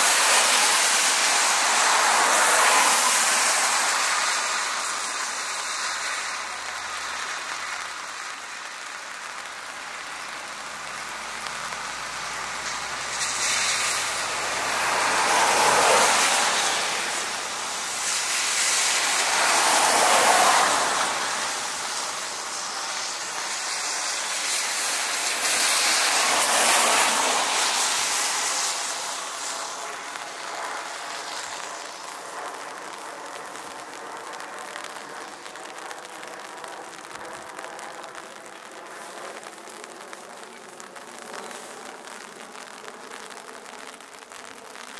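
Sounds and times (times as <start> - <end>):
jet engines roaring: 13.3 - 42.4.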